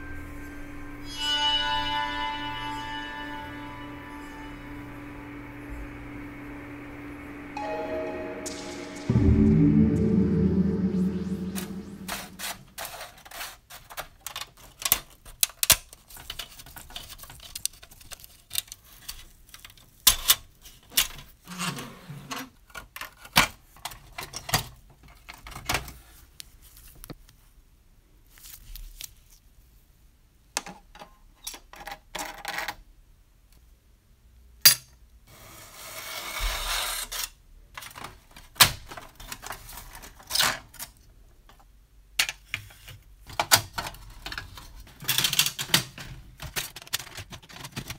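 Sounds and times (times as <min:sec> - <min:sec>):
metal scraping: 0:00.0 - 0:12.9.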